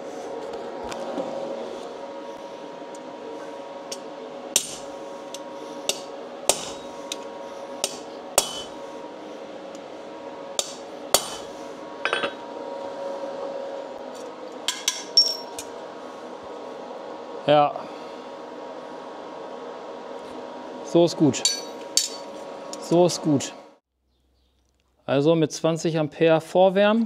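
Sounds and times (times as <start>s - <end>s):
steady background hum: 0.0s - 27.0s
hammer striking steel: 4.6s - 4.9s, 5.9s - 7.2s, 7.8s - 8.8s, 10.6s - 11.5s, 21.4s - 22.3s.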